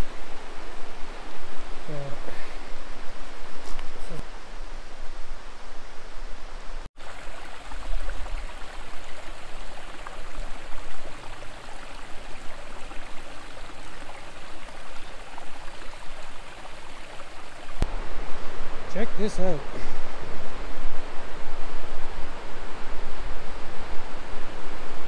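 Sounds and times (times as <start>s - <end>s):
river water rushing: 7.0s - 17.8s.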